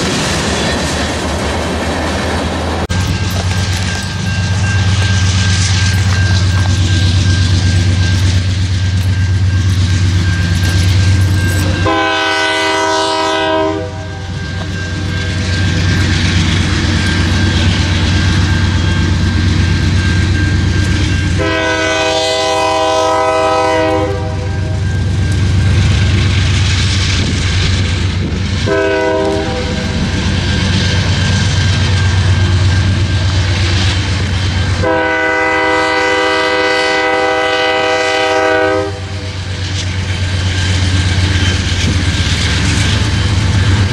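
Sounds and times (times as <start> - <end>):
diesel locomotive engine rumble: 0.0 - 43.9
locomotive horn blasts: 11.7 - 14.4, 21.3 - 24.8, 28.6 - 29.9, 34.8 - 39.3.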